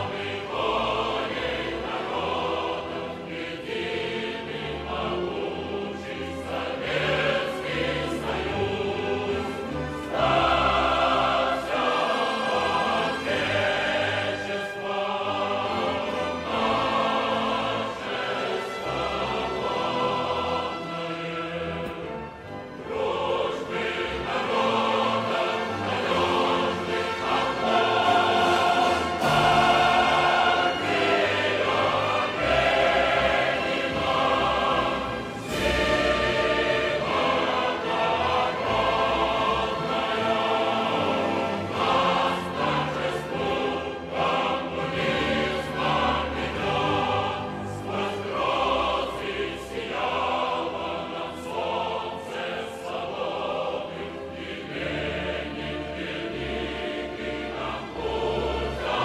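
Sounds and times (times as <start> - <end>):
choir singing held notes: 0.0 - 59.0
musical accompaniment: 0.0 - 59.0.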